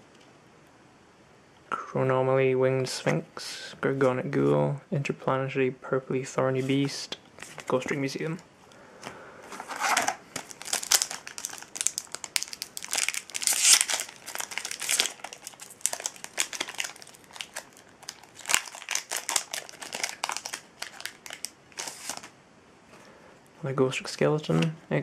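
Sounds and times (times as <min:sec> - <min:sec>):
foil wrapper crinkling: 0:09.6 - 0:22.3.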